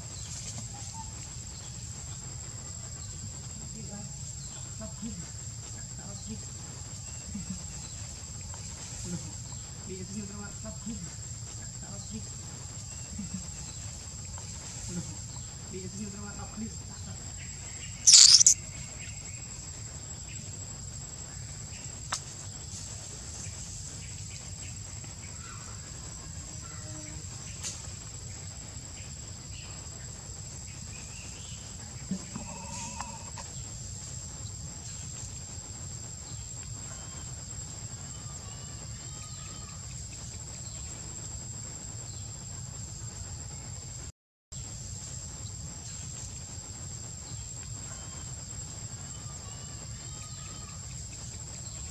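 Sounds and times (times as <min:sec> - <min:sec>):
high insect drone: 0:00.0 - 0:51.9
monkey squealing: 0:18.1 - 0:18.6.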